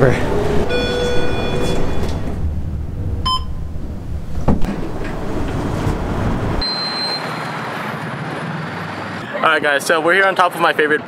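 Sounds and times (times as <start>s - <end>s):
elevator humming: 0.0s - 8.1s
elevator clunk: 0.2s - 7.2s
short elevator chime: 0.7s - 2.4s.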